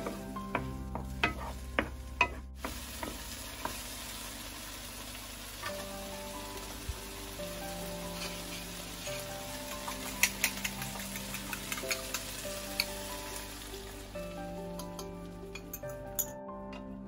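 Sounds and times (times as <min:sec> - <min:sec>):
soft background music: 0:00.0 - 0:03.8, 0:05.6 - 0:17.0
hot oil popping and spitting: 0:00.0 - 0:05.8, 0:08.1 - 0:13.4
tomatoes sizzling in oil: 0:00.0 - 0:15.7.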